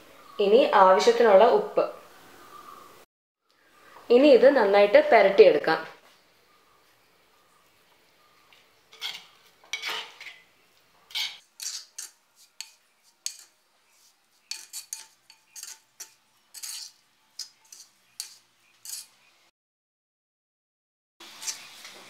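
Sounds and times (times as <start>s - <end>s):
metal spoon scraping pot: 8.9s - 10.4s, 11.1s - 19.3s.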